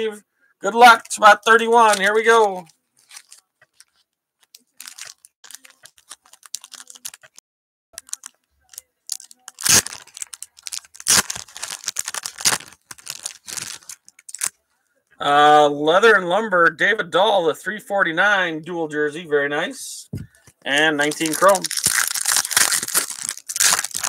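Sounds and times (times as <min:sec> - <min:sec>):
foil wrapper crinkling and tearing: 0:01.0 - 0:07.4, 0:08.0 - 0:14.6, 0:21.0 - 0:24.0.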